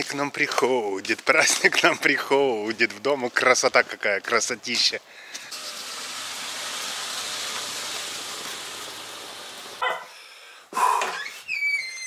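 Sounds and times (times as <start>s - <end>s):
car passing by: 5.5s - 9.8s
high-pitched squeak: 11.1s - 12.0s.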